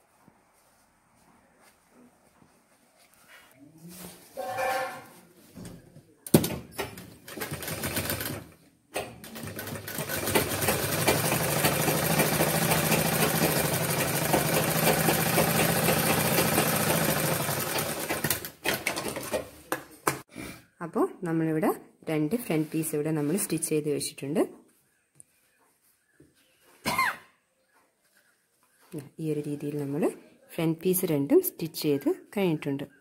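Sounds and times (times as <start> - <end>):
sewing machine stitching: 6.8 - 19.5.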